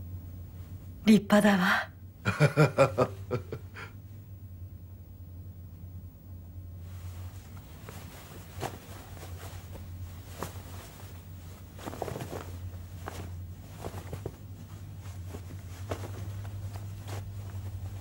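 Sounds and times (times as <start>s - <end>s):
steady low hum: 0.0s - 18.0s
cloth robes rustling: 6.8s - 18.0s
footsteps: 7.2s - 18.0s.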